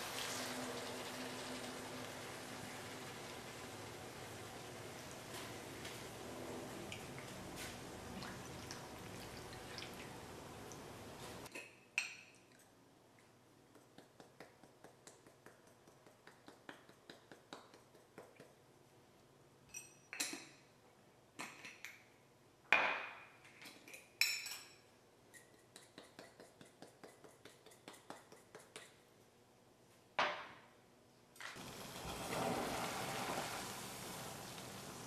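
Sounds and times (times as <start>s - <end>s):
sauce sizzling in a pan: 0.0s - 5.8s, 31.6s - 35.0s.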